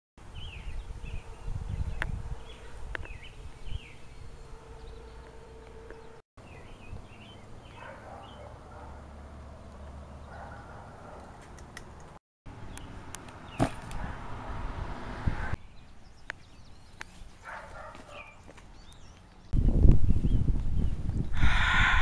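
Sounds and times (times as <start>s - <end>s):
birds chirping: 0.3s - 13.9s, 15.6s - 22.0s.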